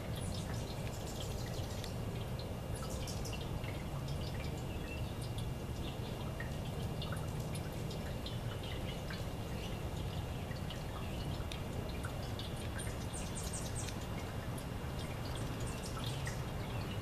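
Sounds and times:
fountain water trickling: 0.0s - 17.0s.

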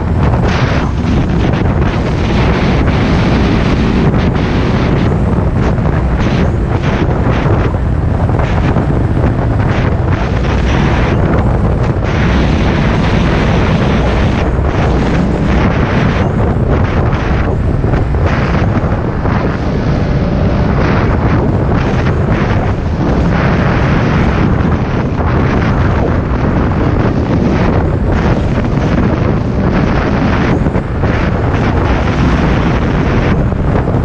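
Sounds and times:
snowmobile engine and track: 0.0s - 34.0s
wind buffeting microphone: 0.0s - 34.0s.

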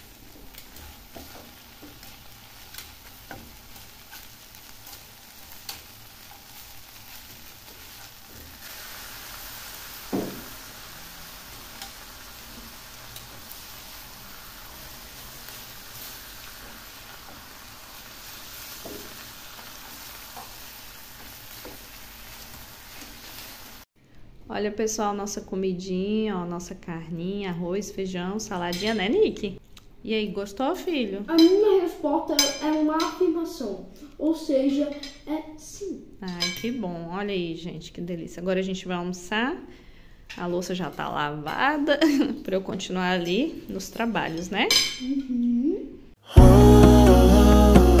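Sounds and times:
meat sizzling in a pan: 0.0s - 23.9s
tongs tapping and scraping pan: 0.2s - 8.6s, 11.6s - 13.6s, 32.4s - 33.2s.

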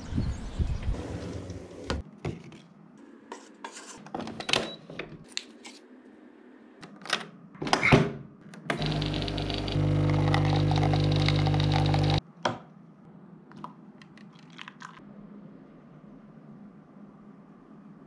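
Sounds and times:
coffee machine pump humming: 8.8s - 12.2s.

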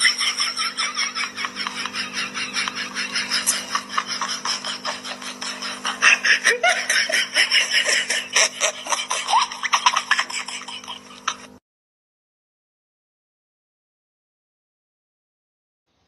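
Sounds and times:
person snickering and giggling: 0.0s - 11.6s
steady low hum: 0.0s - 11.6s.

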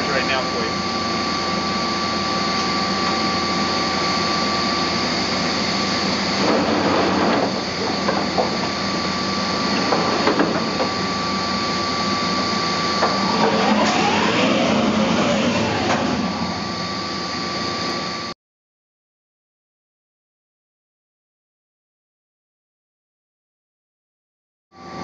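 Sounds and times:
machine hum with high whine: 0.0s - 18.4s, 24.7s - 25.0s.

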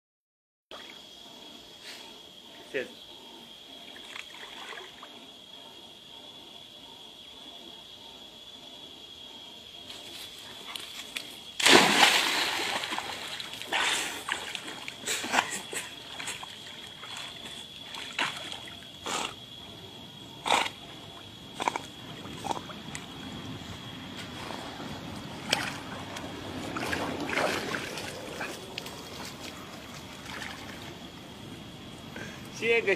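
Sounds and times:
dog swimming splashes: 10.6s - 18.8s, 25.4s - 31.0s
dog splashing into water: 11.1s - 18.8s, 26.7s - 28.6s.

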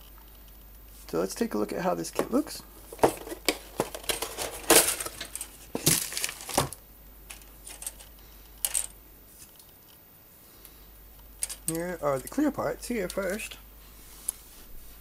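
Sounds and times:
plastic bags crinkling: 3.0s - 6.8s.

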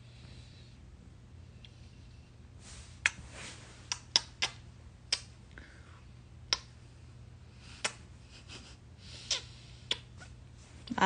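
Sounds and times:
lip smacks of blown kisses: 3.0s - 3.2s, 3.9s - 5.4s, 6.5s - 6.7s, 7.8s - 8.0s, 9.2s - 10.1s.

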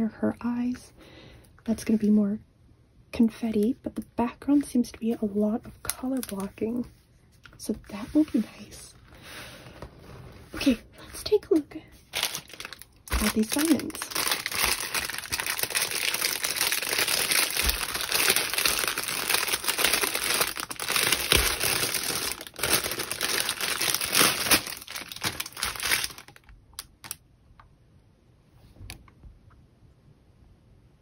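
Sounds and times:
plastic packaging crinkling: 5.8s - 7.6s, 8.6s - 27.2s.

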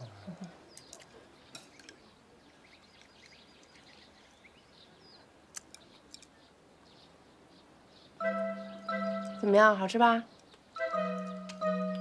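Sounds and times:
faint bird chirps: 0.0s - 12.0s.

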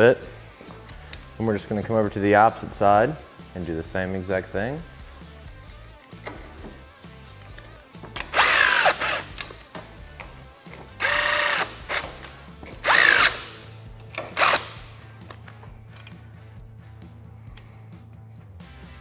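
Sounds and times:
cordless drill motor whine: 11.0s - 11.7s.

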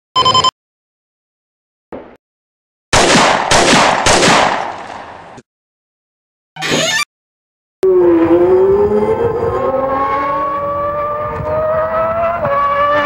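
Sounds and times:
short electronic beep: 0.2s - 0.5s
gunshots: 2.9s - 5.4s.

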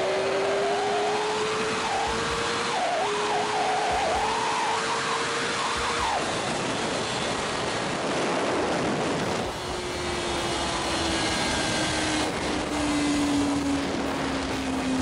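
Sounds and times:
motorcycle engine: 0.0s - 15.0s
wind rushing over camera: 3.8s - 15.0s.

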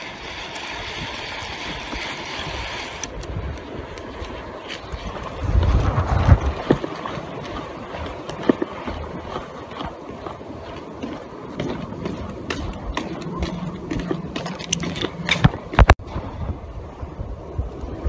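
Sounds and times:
footsteps on wooden planks: 5.6s - 16.0s.

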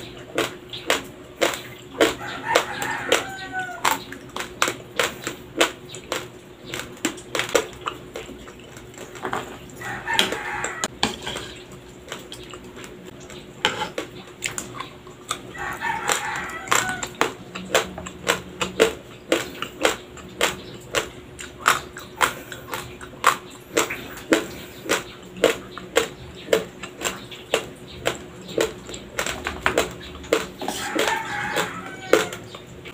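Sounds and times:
raw rice crunching between teeth: 0.0s - 13.2s, 13.8s - 32.7s.

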